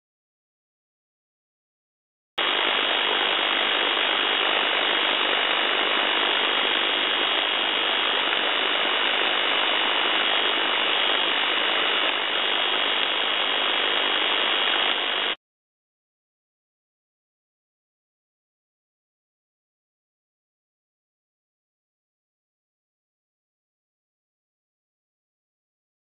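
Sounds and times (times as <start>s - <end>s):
dense electrical impulse noise: 2.4s - 15.4s
thin steady tone: 2.4s - 15.4s.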